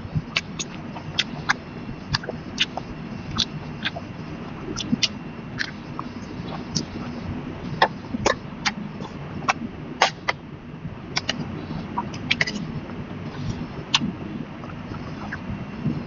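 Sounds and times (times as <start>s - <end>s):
low steady hum: 0.0s - 16.0s
chewing with mouth clicks: 0.3s - 4.0s, 4.7s - 6.9s, 12.0s - 12.6s.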